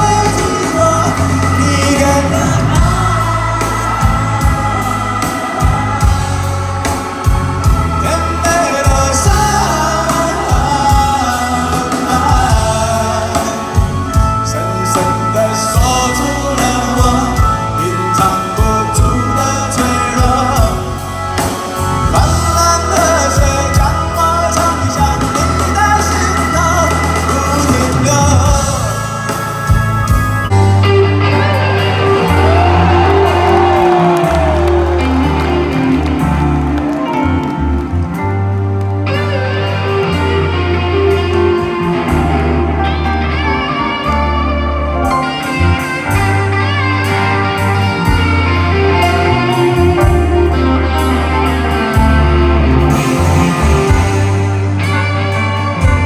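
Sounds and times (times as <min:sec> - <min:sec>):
man singing lead vocal: 0:00.0 - 0:29.8
steady drum beat: 0:00.0 - 0:30.6
bass guitar: 0:00.0 - 0:56.0
electric guitar: 0:00.0 - 0:56.0.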